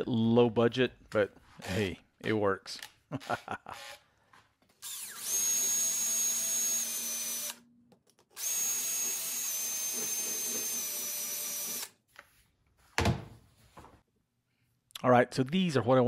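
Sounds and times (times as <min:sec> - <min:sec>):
cordless drill whining: 0:03.7 - 0:04.0, 0:04.8 - 0:07.6, 0:08.4 - 0:12.0.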